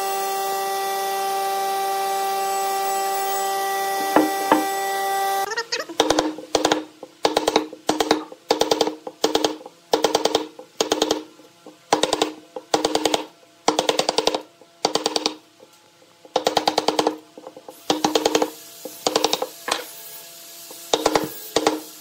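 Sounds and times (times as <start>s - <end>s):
wooden mallet striking chisel: 4.0s - 4.8s.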